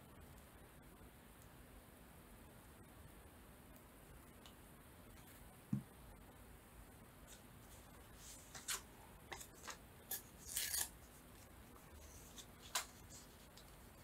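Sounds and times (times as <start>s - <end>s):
paper rustling and crinkling: 7.3s - 9.8s, 10.4s - 14.0s.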